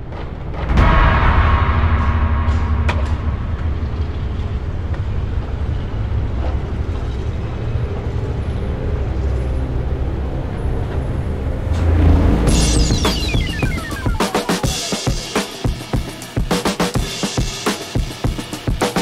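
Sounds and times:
deep rumble: 0.2 - 14.9.

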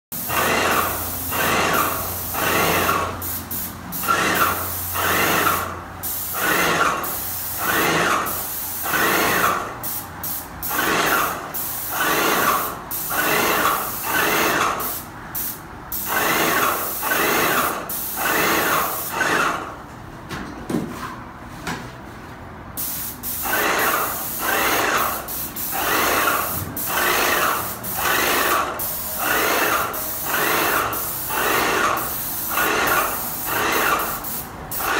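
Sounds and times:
sprayer pump pulsing: 0.2 - 3.2, 4.0 - 5.7, 16.1 - 17.6, 23.4 - 34.2
paint spraying hiss: 0.2 - 19.2, 22.8 - 34.9.

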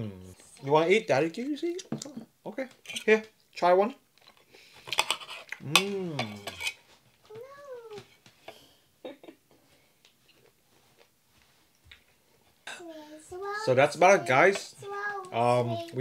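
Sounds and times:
cutlery and dishes clinking: 1.8 - 3.2, 4.9 - 6.8.

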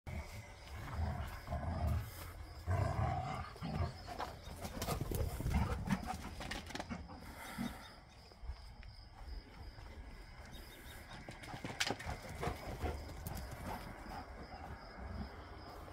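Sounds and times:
dogs growling and snarling: 0.1 - 8.0, 11.5 - 15.4.

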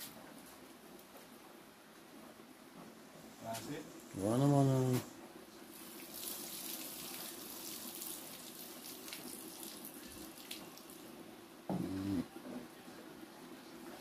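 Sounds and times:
tap water running into sink: 5.8 - 11.0.

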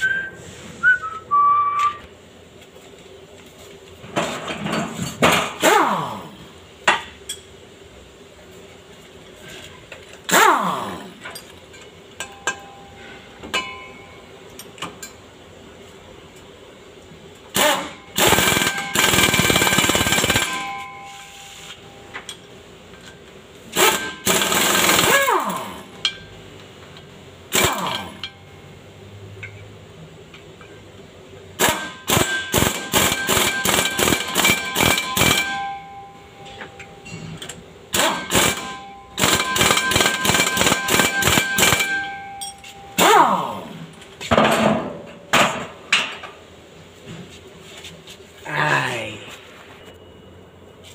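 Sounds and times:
pneumatic impact wrench rattling: 4.6 - 6.3, 10.1 - 11.5, 17.5 - 21.2, 23.7 - 26.0, 27.5 - 28.3, 31.6 - 35.6, 37.9 - 42.2, 42.9 - 43.9.

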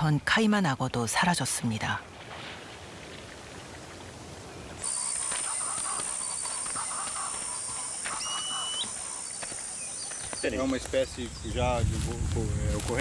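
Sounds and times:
birds calling: 3.0 - 13.0.

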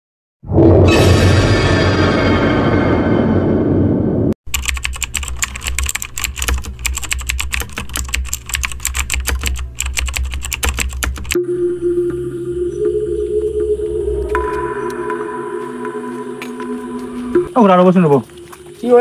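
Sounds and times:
keyboard typing clicks: 4.5 - 11.4
loud dark music: 11.4 - 18.8
steady humming tone: 11.4 - 18.9
steady low drone: 11.4 - 18.9.

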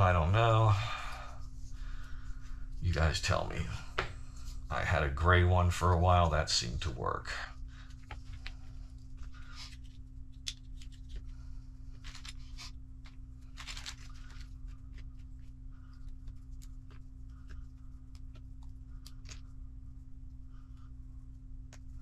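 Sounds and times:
steady low hum: 0.0 - 22.0
plastic bag crinkling: 13.4 - 15.4.

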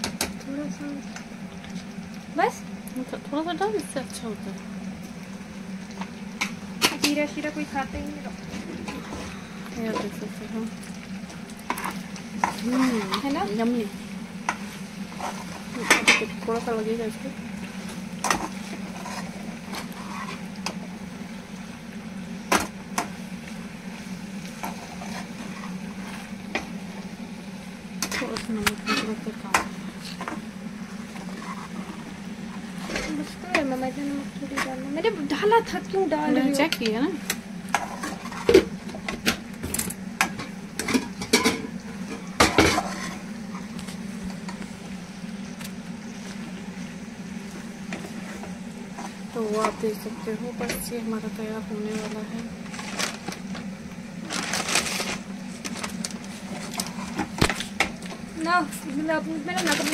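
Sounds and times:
steady low hum: 0.0 - 59.9
spatula scraping a pan: 11.7 - 13.4, 14.5 - 16.3, 18.2 - 20.5, 24.6 - 26.7, 31.1 - 32.1, 37.7 - 38.6, 40.8 - 43.7
spatula scraping and knocking pan: 40.2 - 43.7.

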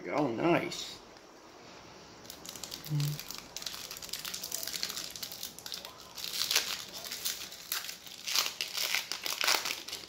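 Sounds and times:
foil wrapper crinkling and tearing: 2.2 - 10.0.

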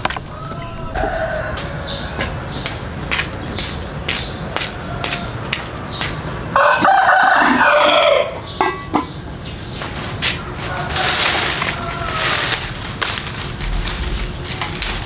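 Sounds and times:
rooster crowing: 0.2 - 2.7, 4.6 - 5.8, 6.5 - 8.4, 10.4 - 12.8.

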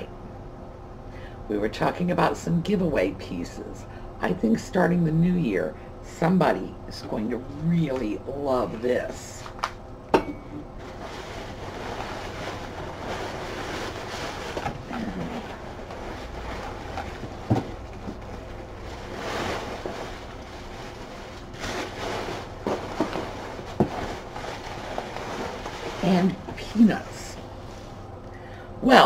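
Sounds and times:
paper and packing rustling: 10.8 - 27.9.

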